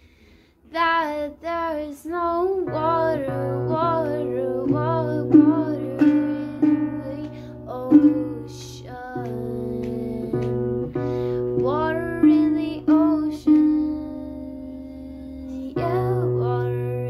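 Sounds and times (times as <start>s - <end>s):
woman singing: 0.7s - 17.0s
acoustic guitar strumming: 2.7s - 14.2s.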